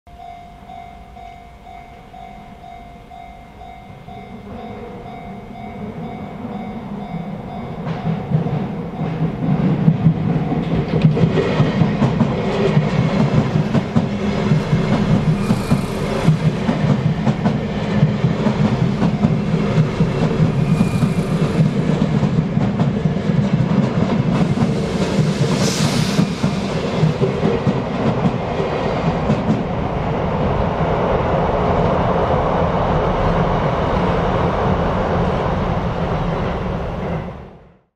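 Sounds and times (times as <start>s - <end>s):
train wheels rumbling on rails: 0.7s - 37.6s
clickety-clack over rail joints: 7.8s - 30.1s
brief high-pitched hisses: 24.6s - 27.6s.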